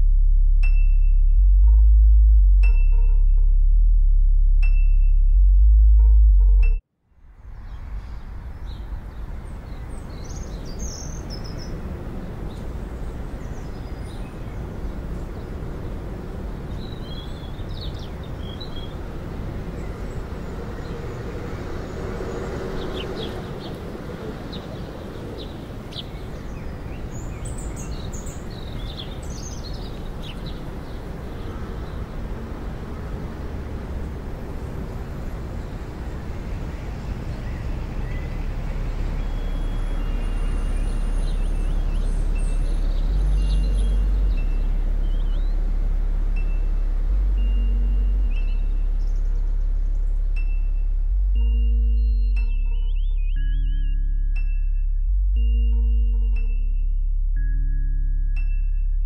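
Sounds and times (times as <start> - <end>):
music: 0.0 - 6.8, 39.0 - 59.0
birds chirping: 12.4 - 33.4, 34.0 - 54.1.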